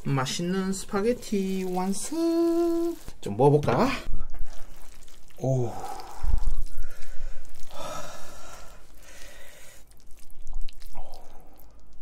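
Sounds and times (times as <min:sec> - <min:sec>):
wet squishing of noodles: 0:00.0 - 0:12.0
breathy rush of air: 0:05.6 - 0:09.8.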